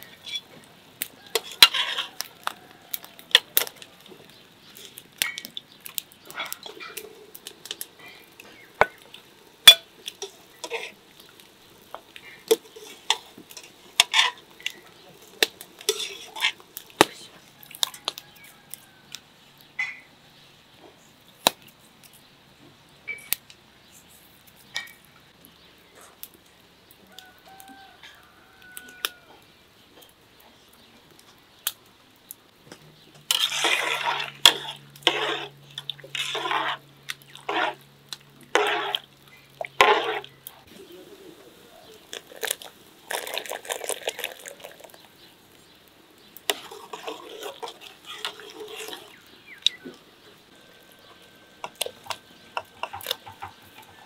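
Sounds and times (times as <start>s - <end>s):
metal spoon clinking on pans: 15.8s - 16.6s, 51.1s - 54.0s.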